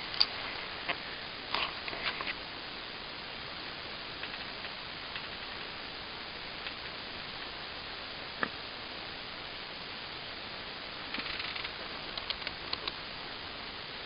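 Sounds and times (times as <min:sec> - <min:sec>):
steady hiss: 0:00.0 - 0:14.0
faint ticks: 0:11.1 - 0:13.0
sharp click: 0:11.1 - 0:13.0.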